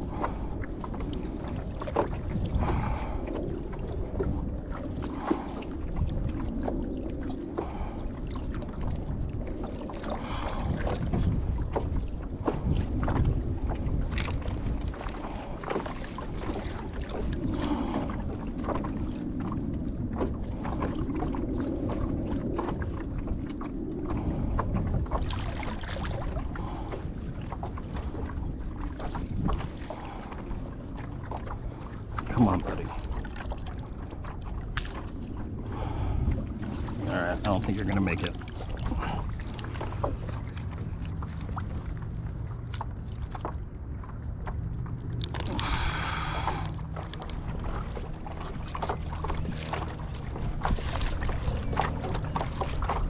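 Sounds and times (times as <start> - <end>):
water lapping against kayak hull: 0.0 - 53.0.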